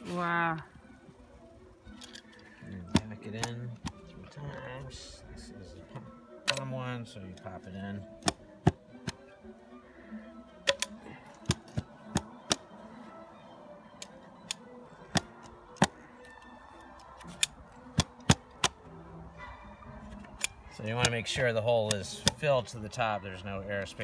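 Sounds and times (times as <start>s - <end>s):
sharp clicks of spring-loaded tool: 10.6s - 12.6s, 14.0s - 16.0s, 17.2s - 18.8s, 20.3s - 21.2s.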